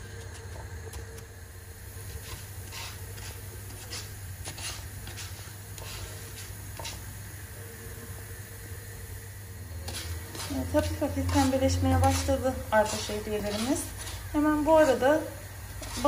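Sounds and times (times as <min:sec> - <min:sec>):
pasta sizzling in oil: 0:01.5 - 0:16.0
wooden spatula scraping pan: 0:02.1 - 0:07.1, 0:09.8 - 0:16.0.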